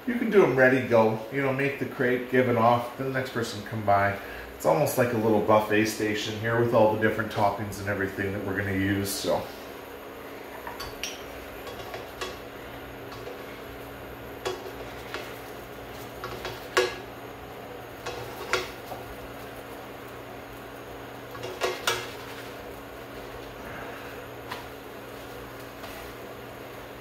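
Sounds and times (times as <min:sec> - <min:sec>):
steady low hum: 0:00.0 - 0:27.0
utensils clinking against dishes: 0:10.6 - 0:12.5.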